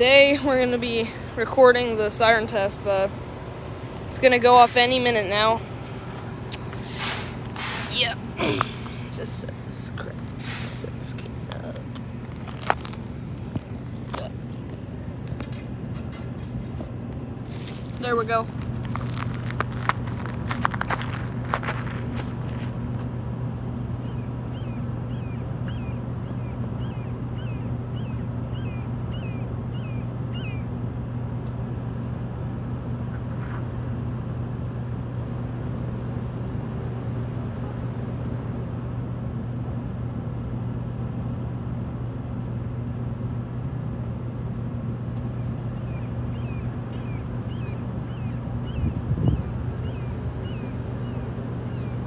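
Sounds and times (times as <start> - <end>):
low mechanical hum: 0.0 - 52.0
bird chirping: 45.7 - 52.0.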